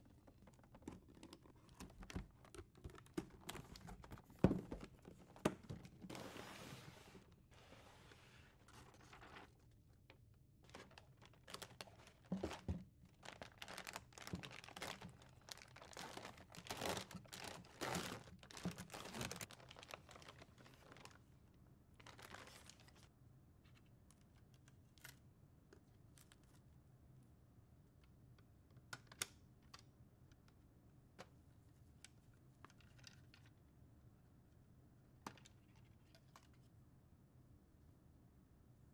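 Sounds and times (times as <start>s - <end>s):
foil bag crinkling and tearing: 10.7s - 21.2s, 22.0s - 22.9s.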